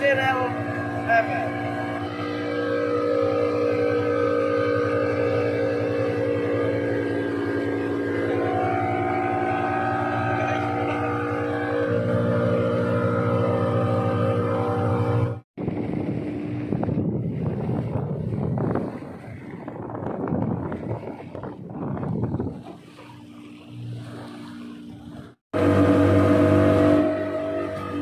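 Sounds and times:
boat engine running: 0:00.0 - 0:28.0
wind on microphone: 0:15.6 - 0:23.2.

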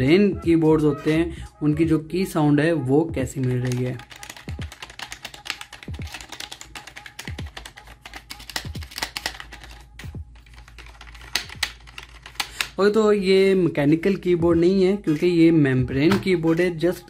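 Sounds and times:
typing on membrane keyboard: 0:03.3 - 0:12.8.

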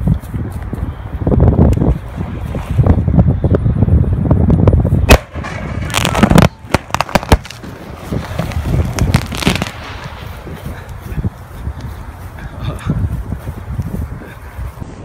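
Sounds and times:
wind buffeting microphone: 0:00.0 - 0:15.0
cracks and pops: 0:05.1 - 0:09.8
sharp explosive bang: 0:05.1 - 0:10.1.

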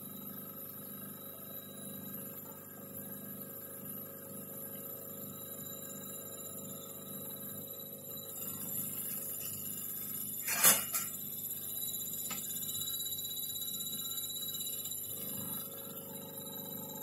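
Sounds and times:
electrical hum: 0:00.0 - 0:17.0
faint high steady tones: 0:04.9 - 0:17.0.

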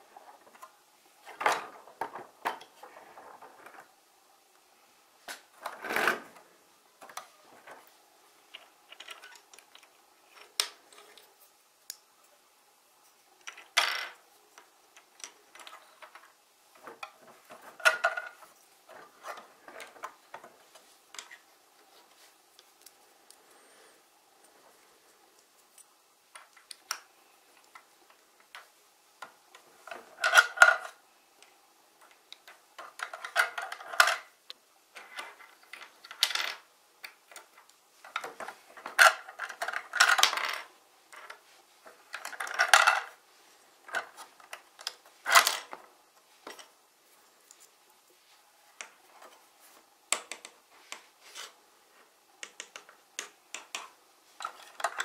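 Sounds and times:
plastic blocks clicking and clattering: 0:08.5 - 0:11.3, 0:13.4 - 0:20.5, 0:26.3 - 0:31.0, 0:32.0 - 0:43.2, 0:43.8 - 0:45.8, 0:50.1 - 0:51.0, 0:52.4 - 0:55.0.

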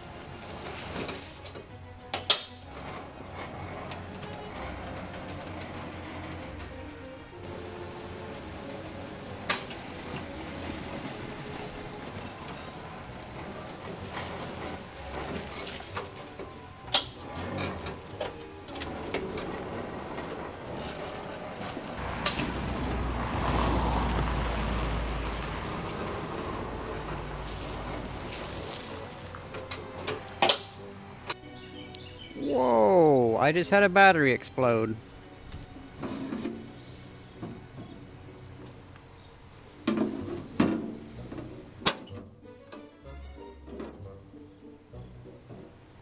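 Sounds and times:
gravel scraping and shifting: 0:00.0 - 0:30.9, 0:31.6 - 0:41.8
electric tractor drive running: 0:00.0 - 0:32.2.

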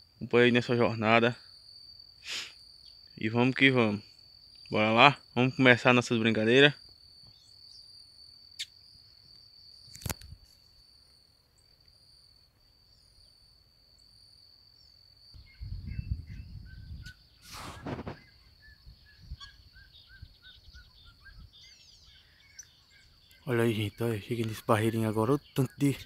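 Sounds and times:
insect trilling: 0:00.2 - 0:26.0
short repeated bird calls: 0:15.4 - 0:23.6
rustling through brush: 0:17.4 - 0:18.3.

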